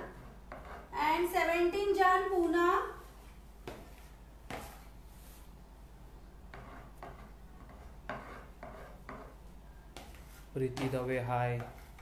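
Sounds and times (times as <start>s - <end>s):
palette knife scraping cream: 0.0s - 0.9s, 6.5s - 9.4s.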